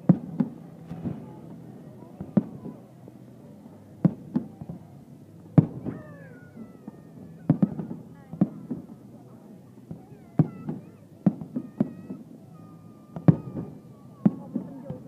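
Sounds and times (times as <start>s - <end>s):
fireworks bangs: 0.0s - 2.8s, 5.6s - 6.2s, 6.8s - 9.0s, 9.9s - 15.0s
smaller fireworks pops: 0.0s - 2.9s, 3.7s - 4.9s, 5.6s - 6.0s, 6.8s - 9.0s, 9.9s - 12.4s, 13.1s - 15.0s.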